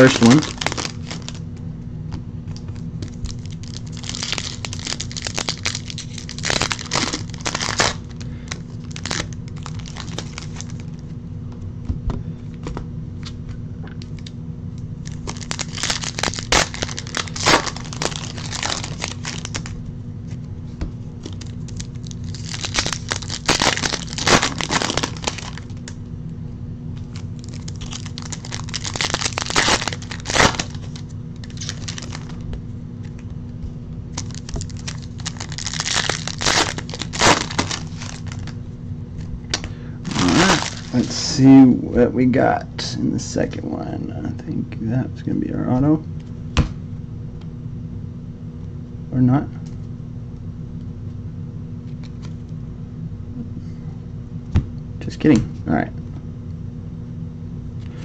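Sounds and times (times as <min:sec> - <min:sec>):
foil wrappers crinkling and tearing: 0:00.0 - 0:01.4, 0:02.7 - 0:11.0, 0:15.0 - 0:19.8, 0:21.2 - 0:26.0, 0:27.0 - 0:32.4, 0:34.1 - 0:38.6, 0:39.5 - 0:41.4
low hum: 0:00.0 - 0:58.0.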